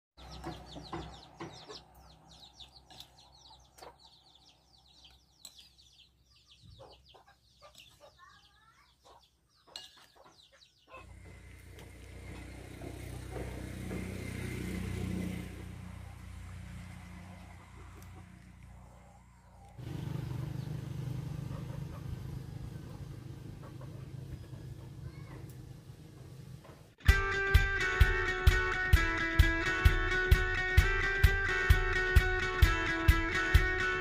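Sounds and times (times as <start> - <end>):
chickens clucking: 0.2 - 13.5, 15.9 - 25.5
outdoor rumble and hiss: 11.1 - 27.0.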